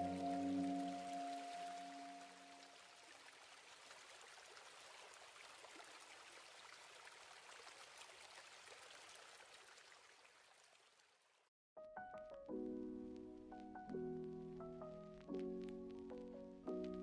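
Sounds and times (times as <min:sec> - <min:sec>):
tiny water drips: 0:00.0 - 0:11.4
faint water trickle: 0:00.0 - 0:11.5.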